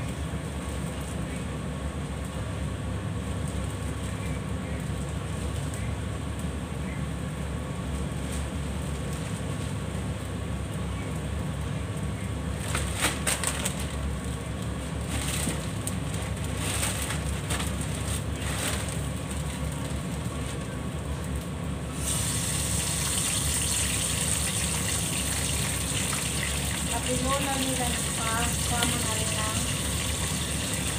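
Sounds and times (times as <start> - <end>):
plastic bags crinkling: 12.6 - 14.2, 14.8 - 20.8.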